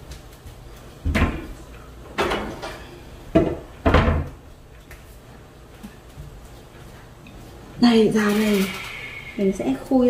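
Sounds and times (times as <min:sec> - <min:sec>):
drawers and cupboard doors knocking: 0:03.4 - 0:04.4.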